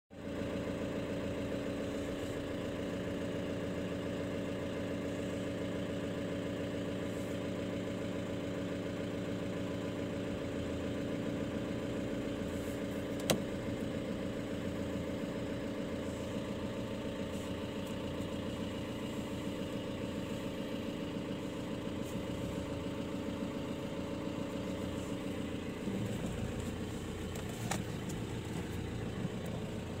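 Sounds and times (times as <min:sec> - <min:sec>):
vehicle engine idling: 0:00.1 - 0:30.0
sharp click: 0:13.2 - 0:13.4.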